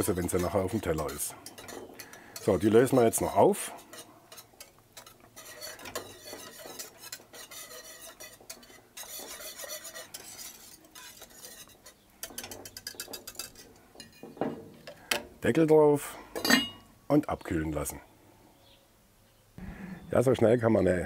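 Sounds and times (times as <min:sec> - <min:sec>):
whisk swishing in sauce: 0:00.0 - 0:13.6
whisk wires scraping pot: 0:00.0 - 0:15.9.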